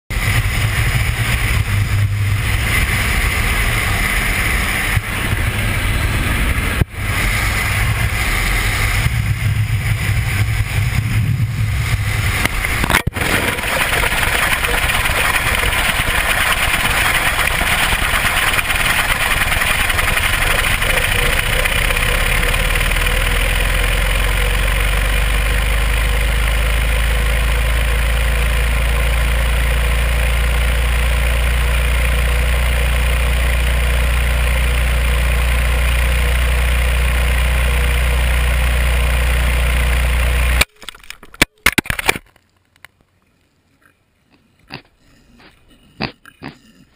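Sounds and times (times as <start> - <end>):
camera hitting the ground: 12.3 - 14.7, 40.6 - 43.0.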